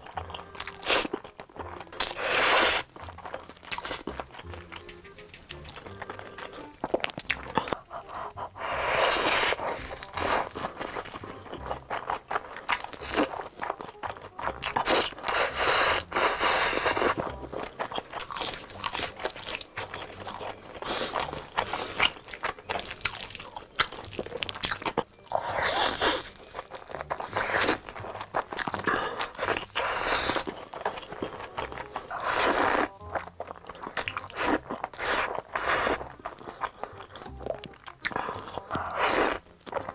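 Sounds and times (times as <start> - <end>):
wet chewing: 0.0 - 39.9
slurping noodles: 2.0 - 3.0, 7.4 - 13.4, 14.5 - 17.4, 25.3 - 31.0, 31.9 - 33.0, 33.8 - 37.4, 38.1 - 39.9
crunchy bites: 8.5 - 39.9.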